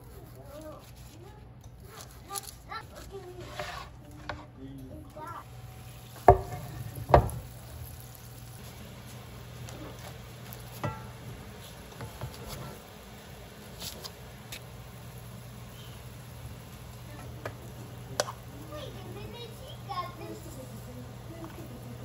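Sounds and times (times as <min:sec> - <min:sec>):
steady low hum: 0:02.6 - 0:22.0
heavy pot knocking on wooden board: 0:06.2 - 0:07.6.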